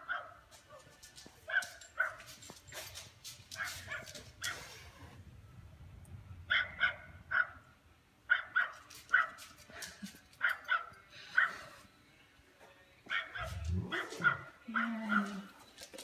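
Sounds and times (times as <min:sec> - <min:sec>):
small dog yelping and barking: 0:13.1 - 0:15.4.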